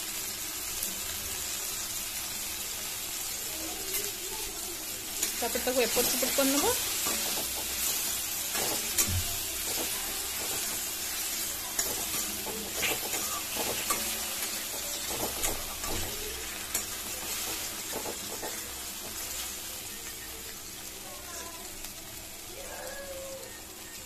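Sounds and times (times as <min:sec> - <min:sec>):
food sizzling in oil: 0:00.0 - 0:24.0
metal spatula stirring and scraping: 0:05.2 - 0:20.2.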